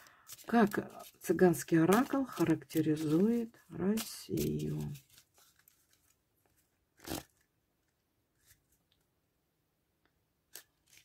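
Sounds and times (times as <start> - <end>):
card deck being shuffled: 0.2 - 6.1.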